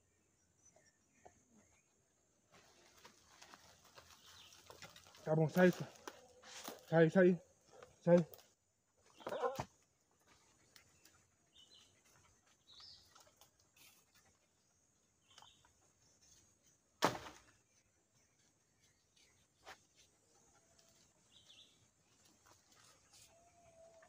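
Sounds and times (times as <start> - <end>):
bird chirps: 0.0 - 2.0, 10.6 - 16.8
sharp thud: 17.0 - 17.5.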